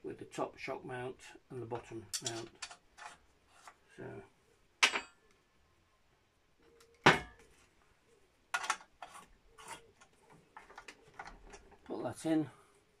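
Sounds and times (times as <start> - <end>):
metal tools clinking: 2.1 - 3.2.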